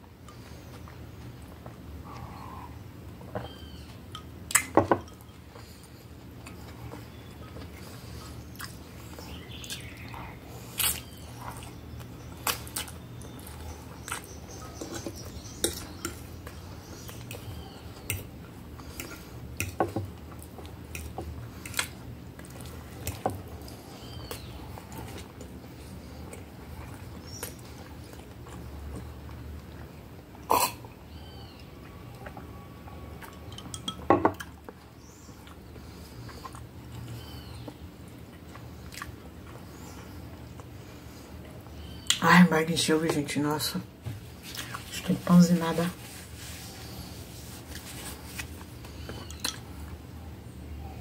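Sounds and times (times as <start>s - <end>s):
chewing and mouth smacks: 5.5s - 30.5s, 33.2s - 33.7s, 34.4s - 40.8s.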